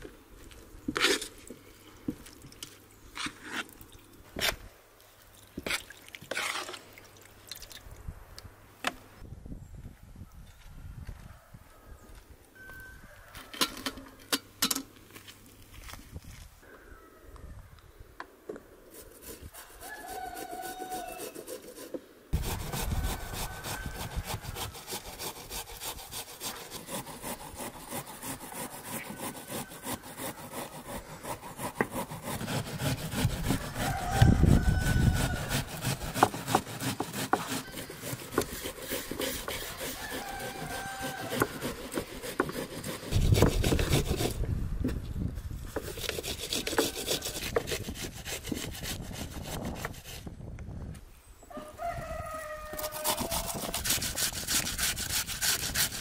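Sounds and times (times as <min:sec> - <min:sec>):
scraping and rasping food by hand: 0:18.9 - 0:44.4, 0:45.7 - 0:50.3, 0:52.7 - 0:56.0.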